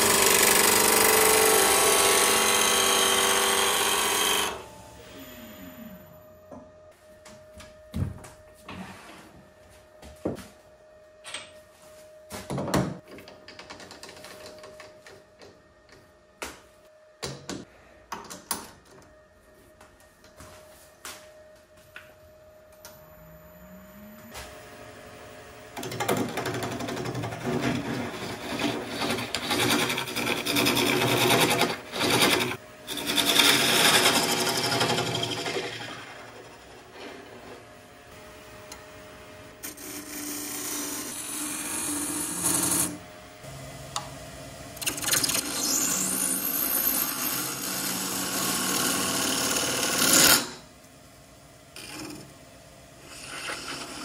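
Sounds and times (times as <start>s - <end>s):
gouge scraping spinning wood: 0.0s - 4.6s, 26.7s - 37.6s, 53.0s - 54.0s
lathe spinning up whine: 0.0s - 7.2s.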